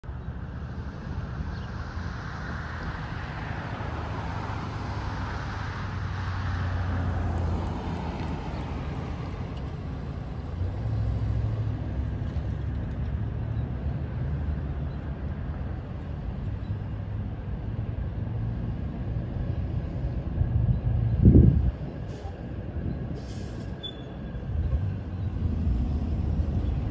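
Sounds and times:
pickup truck passing: 0.9 - 16.1.

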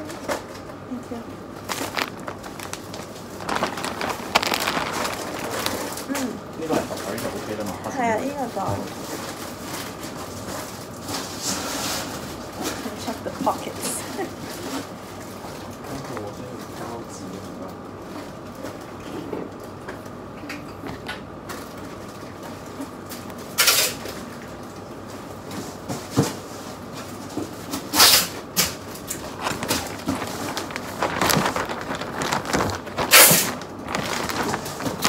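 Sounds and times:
plastic bag crinkling: 1.4 - 10.1, 27.7 - 35.0.

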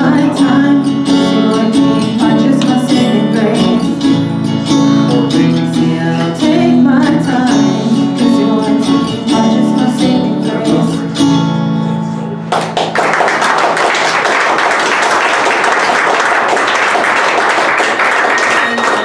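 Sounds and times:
acoustic guitar chords: 0.0 - 19.0
audience applause: 12.5 - 19.0.

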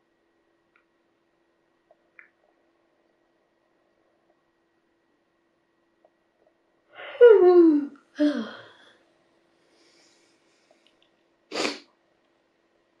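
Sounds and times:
woman's wordless vocal sounds: 7.0 - 8.8.

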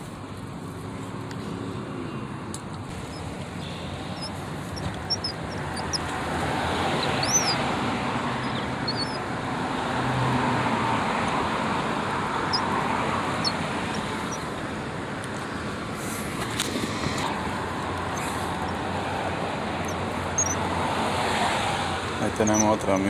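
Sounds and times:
road traffic: 0.0 - 23.0
bird chirps: 2.9 - 6.2, 6.8 - 7.6, 8.3 - 9.2, 13.3 - 14.5, 19.8 - 20.6.

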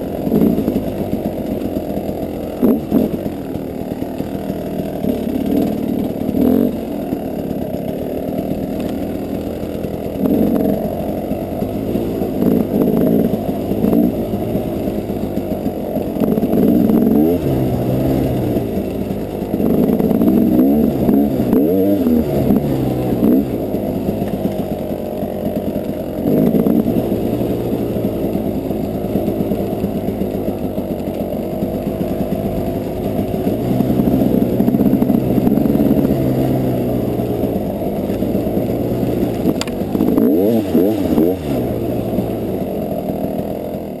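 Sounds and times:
dirt bike engine revving: 0.0 - 44.0.

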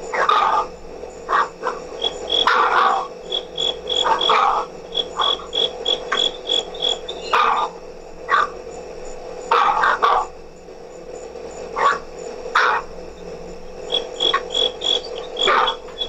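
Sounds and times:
cricket chirping: 0.0 - 16.0
dogs barking: 0.1 - 8.6, 9.5 - 10.3, 11.8 - 13.0, 13.9 - 16.0.

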